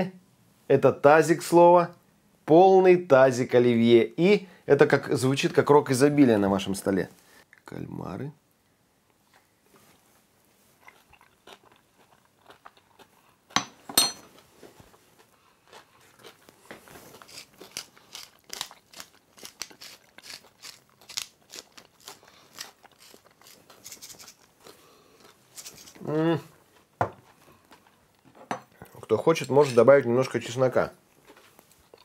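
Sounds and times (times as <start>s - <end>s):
faint chewing: 9.1s - 13.6s, 14.3s - 29.2s, 31.1s - 32.0s.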